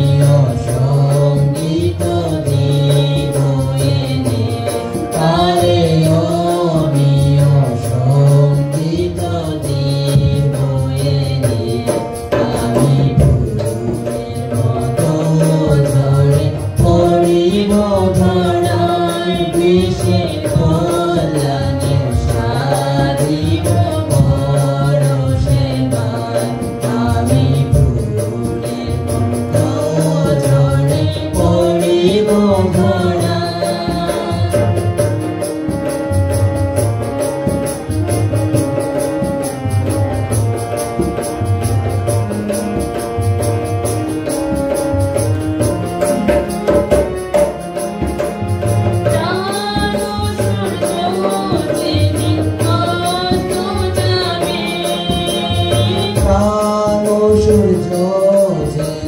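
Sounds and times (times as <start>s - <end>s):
man and woman singing a hymn: 0.0s - 36.2s, 48.4s - 59.0s
steady drum beat: 0.0s - 59.0s.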